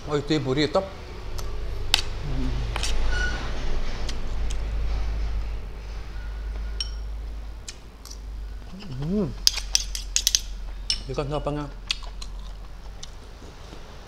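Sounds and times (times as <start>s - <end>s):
steady low hum: 0.0s - 14.0s
person humming: 2.2s - 3.0s, 8.7s - 9.4s
chewing: 11.8s - 13.9s.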